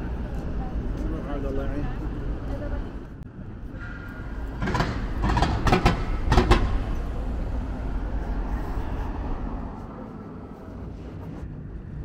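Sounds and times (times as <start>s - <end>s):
passing vehicle rumble: 0.0s - 12.0s
loud clatters: 3.8s - 7.2s.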